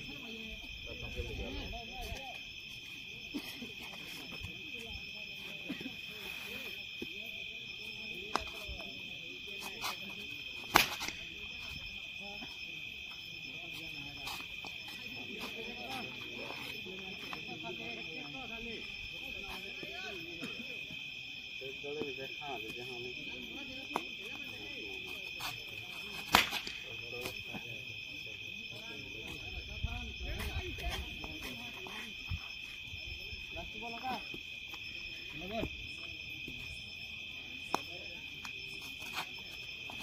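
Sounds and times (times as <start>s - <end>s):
night insects chirring: 0.0s - 40.0s
sharp crack: 10.7s - 11.3s, 26.2s - 26.9s.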